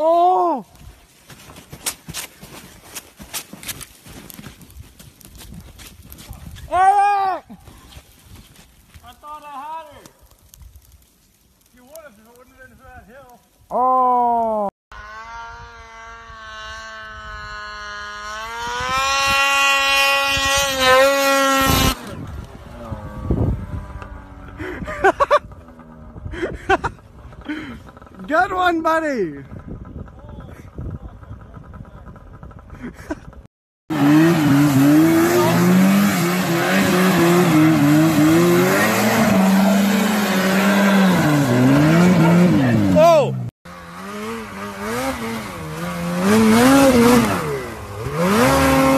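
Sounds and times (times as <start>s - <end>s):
snowmobile engine whining: 11.9s - 48.9s.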